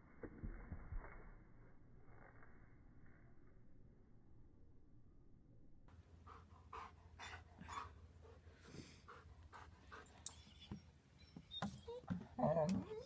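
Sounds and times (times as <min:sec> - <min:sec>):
dog panting: 0:06.2 - 0:10.5.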